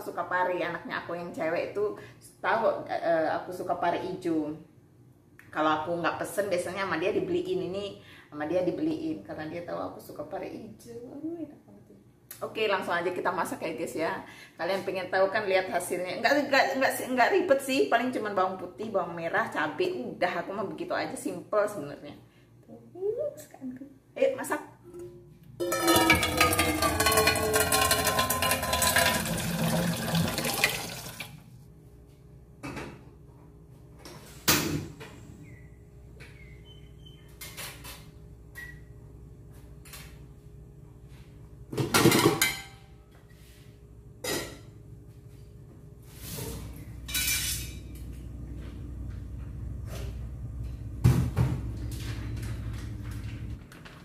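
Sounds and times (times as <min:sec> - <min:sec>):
low steady hum: 0:00.0 - 0:54.0
pots and dishes clanking: 0:25.6 - 0:30.8, 0:41.8 - 0:42.8, 0:46.4 - 0:48.1
tap water running into saucepan: 0:25.7 - 0:31.4.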